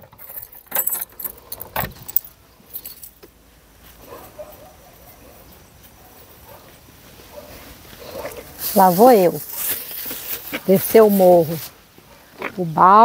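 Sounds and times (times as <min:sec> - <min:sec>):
metallic clinks of tools handled: 0:00.0 - 0:03.3
faint outdoor background: 0:00.0 - 0:13.0.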